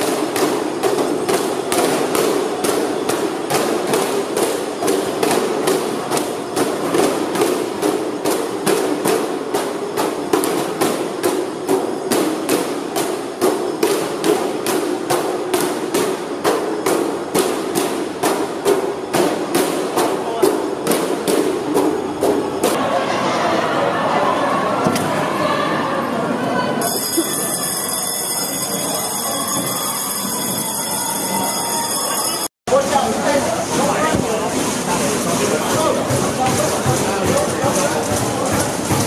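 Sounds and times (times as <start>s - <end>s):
crowd banging in unison: 0.0s - 23.8s, 33.6s - 39.0s
crowd din: 0.0s - 39.0s.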